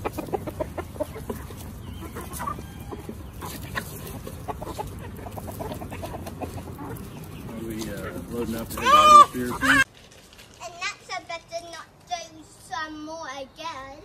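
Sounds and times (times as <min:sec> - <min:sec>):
chickens clucking: 0:00.0 - 0:09.9.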